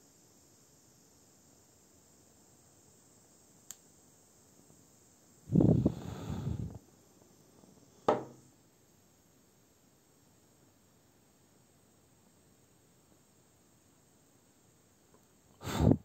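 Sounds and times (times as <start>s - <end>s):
torch flame whoosh: 5.5s - 6.8s.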